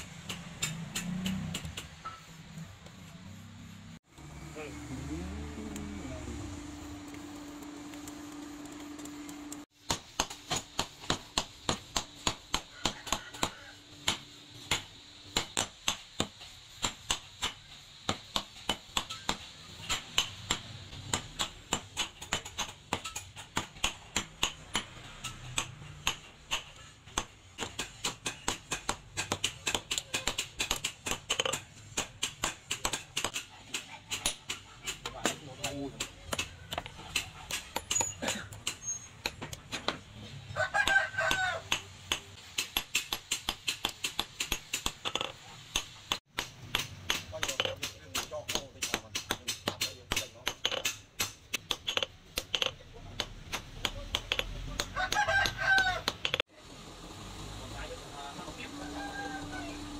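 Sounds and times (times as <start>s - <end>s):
hammer striking metal anvil: 0.0s - 2.4s.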